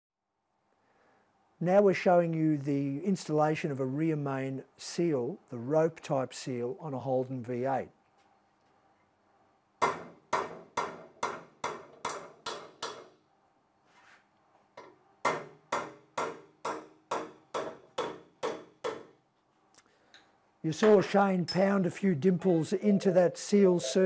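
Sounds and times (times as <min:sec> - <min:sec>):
hammer tapping metal punch: 0:14.8 - 0:19.1.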